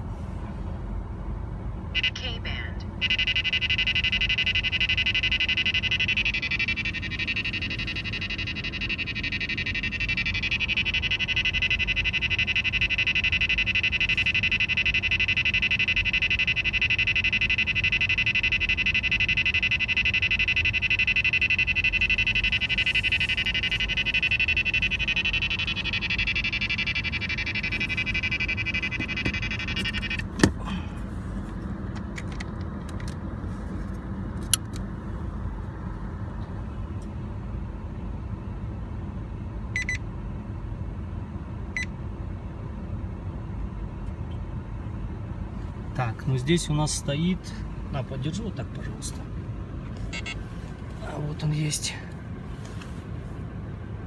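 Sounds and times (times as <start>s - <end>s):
low engine rumble: 0.0s - 54.0s
fast steady beeping alert: 2.0s - 30.8s, 50.0s - 52.1s.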